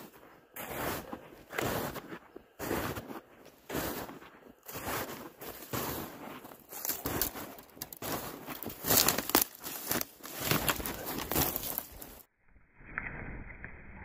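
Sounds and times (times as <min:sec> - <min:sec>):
footsteps crunching through snow: 0:00.0 - 0:12.3
twigs scraping against clothing: 0:05.4 - 0:12.3.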